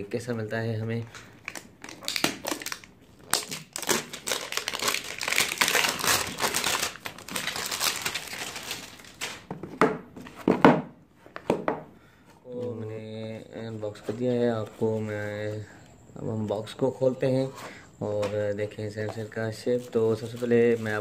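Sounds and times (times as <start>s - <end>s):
plastic wrap crinkling and tearing: 1.4s - 9.5s.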